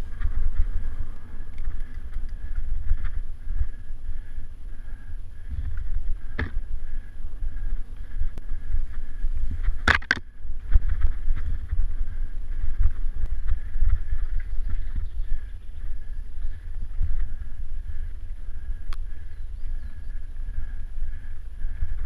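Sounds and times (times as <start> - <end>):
wind rumble on microphone: 0.0 - 22.0
bike rattling and knocking: 5.4 - 7.2, 8.5 - 18.1.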